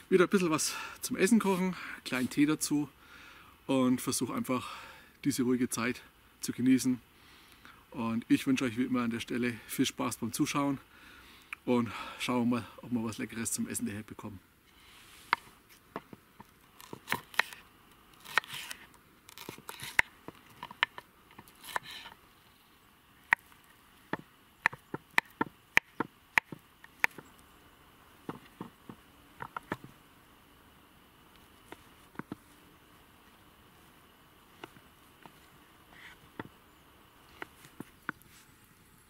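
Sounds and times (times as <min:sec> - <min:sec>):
knife slicing scrapes: 0:18.2 - 0:18.8.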